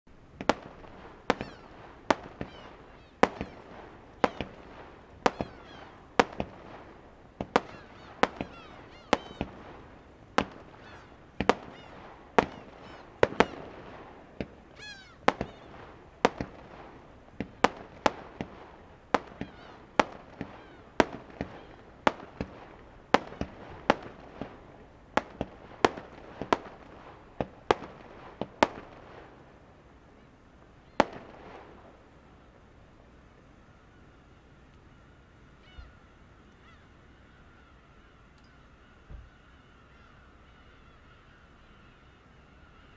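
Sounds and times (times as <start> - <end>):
firework shells bursting: 0.2 - 29.6, 30.9 - 32.1.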